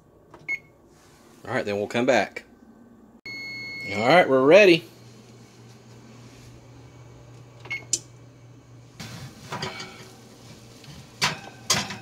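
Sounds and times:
oven humming: 0.0s - 12.0s
metal baking sheet scraping: 9.0s - 12.0s.

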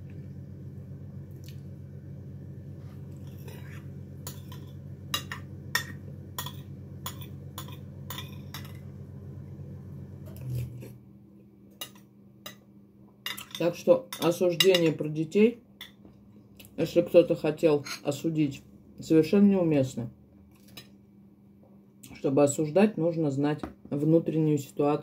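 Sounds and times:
steady low hum: 0.0s - 25.0s
cutlery clinking against plate: 4.3s - 8.8s, 11.8s - 12.6s, 13.3s - 15.0s.

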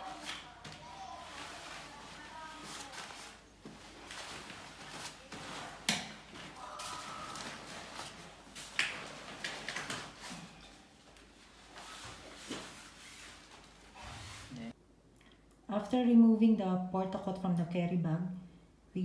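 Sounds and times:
fabric rustling: 0.0s - 14.8s.

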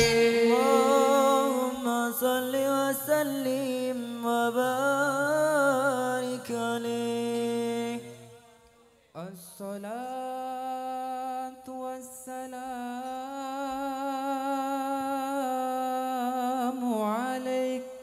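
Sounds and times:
person singing a long held note: 0.0s - 3.6s.

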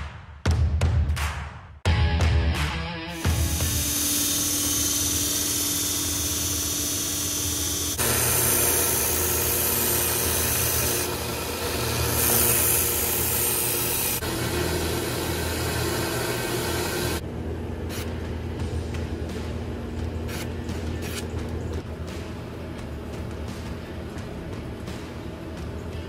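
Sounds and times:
belt sander motor hum: 3.2s - 17.2s.

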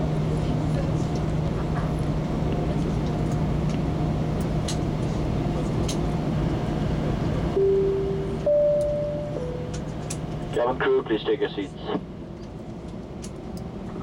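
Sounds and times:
aircraft engine hum and rumble: 0.0s - 14.0s
two-tone chime: 7.6s - 9.8s.

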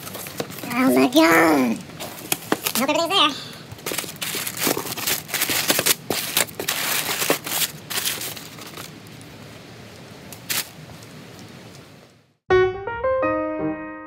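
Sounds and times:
paper and plastic wrap rustling: 0.0s - 9.5s, 10.4s - 11.5s.

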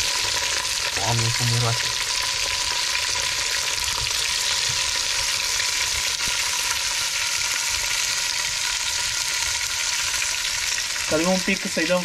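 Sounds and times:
sausages sizzling in lard: 0.0s - 12.0s.

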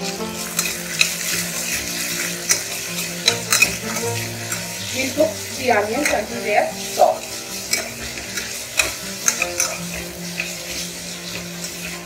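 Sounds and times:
metal spatula scraping pan: 0.0s - 12.0s
onions sizzling in oil: 0.0s - 12.0s.

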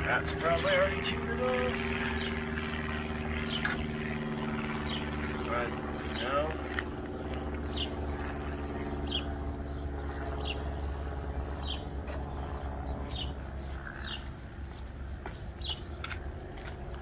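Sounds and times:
steady low hum: 0.0s - 17.0s
bird chirping: 9.0s - 14.4s.

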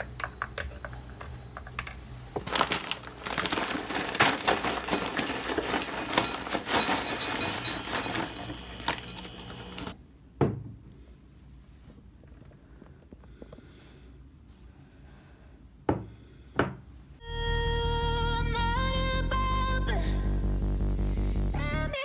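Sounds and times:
popcorn pattering into glass bowl: 0.0s - 10.0s
bag crinkling: 1.8s - 10.0s
low hum: 17.2s - 22.0s.

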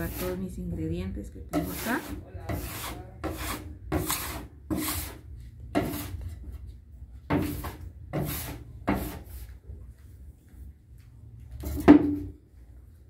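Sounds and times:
metal scraper on steel table: 0.0s - 0.4s, 1.5s - 5.2s, 5.8s - 6.2s, 7.3s - 9.3s.

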